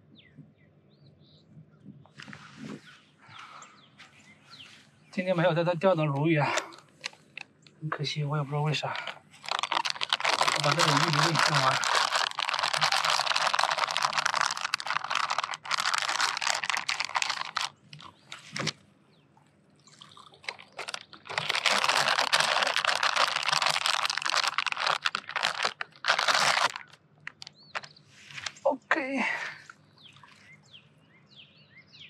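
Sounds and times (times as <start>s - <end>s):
crinkling handling noise: 6.1s - 28.7s.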